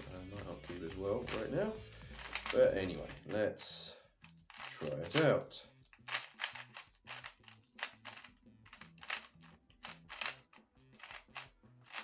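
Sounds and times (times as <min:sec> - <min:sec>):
low background music: 0:00.0 - 0:12.0
speedcube clacking: 0:02.2 - 0:02.6, 0:04.5 - 0:05.3, 0:05.9 - 0:12.0.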